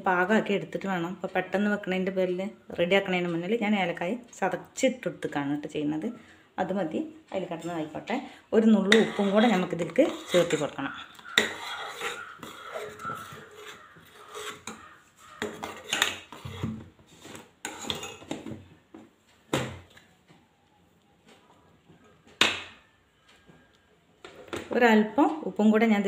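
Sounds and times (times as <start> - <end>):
ladle scraping steel saucepan: 8.8 - 14.8, 15.4 - 18.4.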